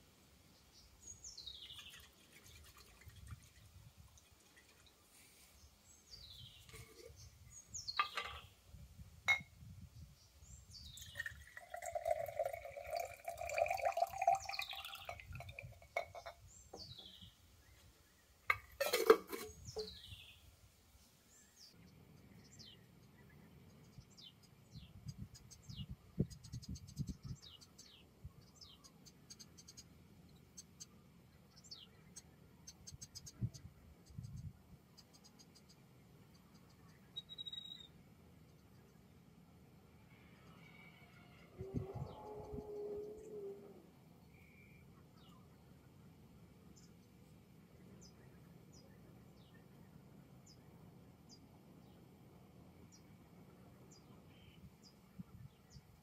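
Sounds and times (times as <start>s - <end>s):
water poured into glass jar: 1.8s - 5.0s, 10.9s - 16.2s
jar knocking on wooden rail: 15.4s - 17.0s
birds whistling calls: 37.1s - 37.9s
fast high bird chirping: 37.2s - 37.9s.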